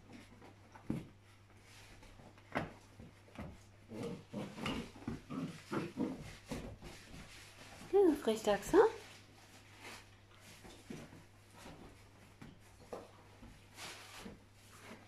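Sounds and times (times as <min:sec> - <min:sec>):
dogs scuffling: 0:00.0 - 0:15.0.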